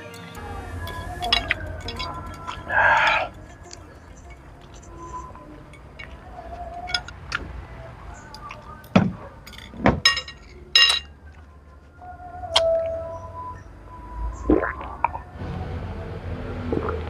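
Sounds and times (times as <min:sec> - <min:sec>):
short ringing clinks: 0:09.4 - 0:11.1.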